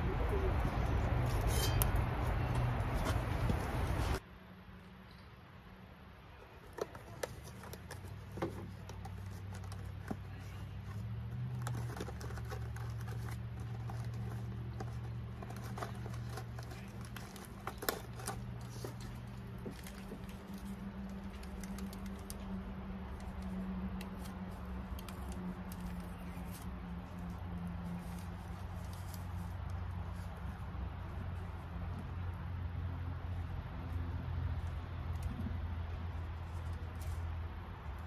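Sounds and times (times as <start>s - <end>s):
cardboard box and paper rustling: 6.5s - 23.5s, 24.1s - 31.2s.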